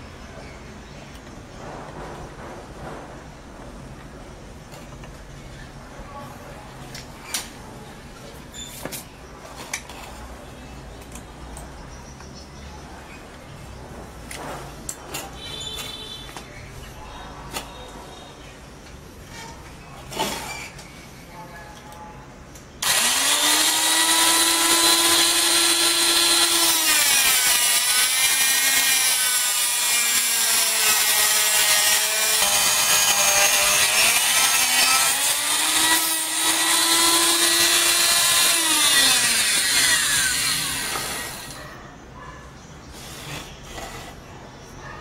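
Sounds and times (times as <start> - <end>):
rotary tool grinding metal: 22.8 - 41.6.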